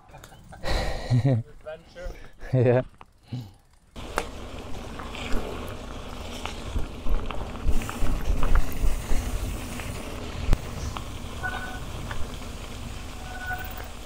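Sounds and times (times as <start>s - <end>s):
bike knocking and rattling: 1.3s - 14.0s
tyres crunching on gravel: 3.8s - 14.0s
wind rumbling on microphone: 4.4s - 14.0s.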